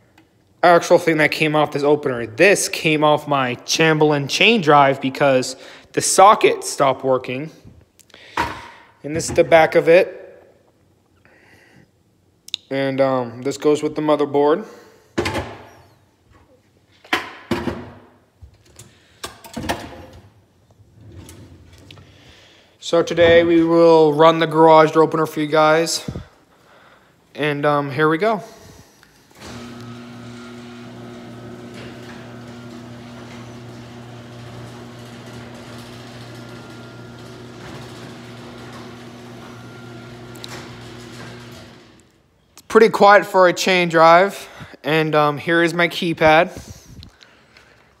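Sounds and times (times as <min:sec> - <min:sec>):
garage door opener motor hum: 0:29.3 - 0:42.2.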